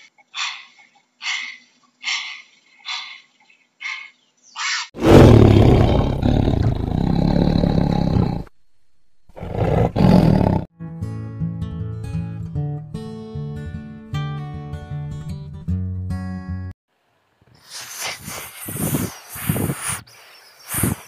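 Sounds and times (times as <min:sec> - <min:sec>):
tiger roaring: 0:05.0 - 0:08.5, 0:09.3 - 0:10.7.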